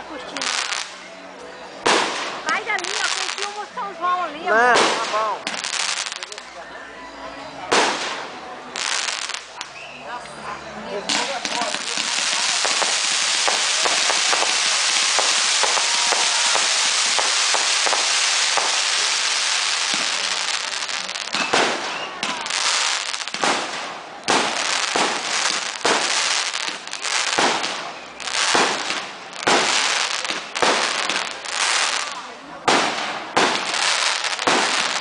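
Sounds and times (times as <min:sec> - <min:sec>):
firework fountains hissing and crackling: 0:00.0 - 0:06.6, 0:07.6 - 0:35.0
firework shells bursting: 0:11.1 - 0:27.8.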